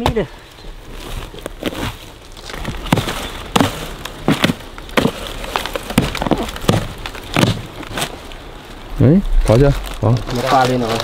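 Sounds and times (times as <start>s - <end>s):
hand tool chopping palm trunk: 1.6s - 8.1s.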